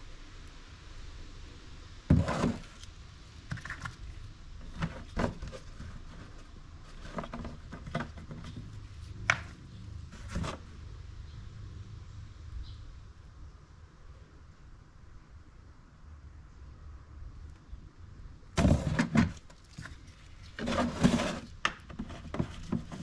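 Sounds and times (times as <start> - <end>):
knocks and clunks of handled items: 2.1 - 2.8, 4.6 - 10.7, 18.6 - 23.0.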